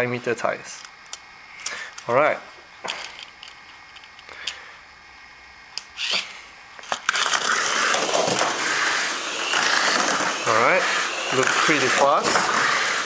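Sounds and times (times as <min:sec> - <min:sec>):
toy car motor whirring: 0:05.8 - 0:13.0
toy car rattling on track: 0:06.9 - 0:13.0.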